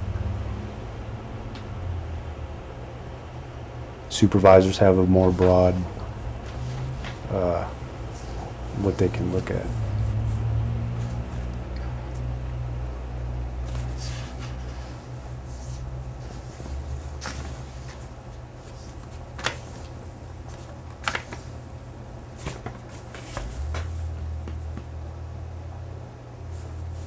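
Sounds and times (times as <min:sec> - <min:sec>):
low room hum: 0:00.0 - 0:27.0
paper shuffling: 0:05.3 - 0:11.5, 0:13.6 - 0:21.7, 0:22.3 - 0:24.9
sharp paper crackles: 0:16.3 - 0:21.6, 0:22.4 - 0:23.9.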